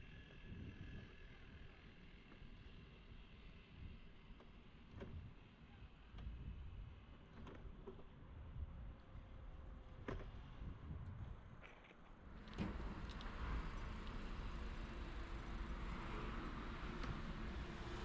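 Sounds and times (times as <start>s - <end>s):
road traffic hum: 11.8s - 18.0s
faint clicks: 12.4s - 14.2s.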